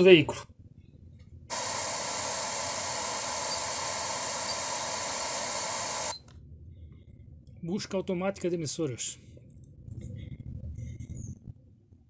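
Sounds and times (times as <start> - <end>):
radio static hiss: 1.5 - 6.2.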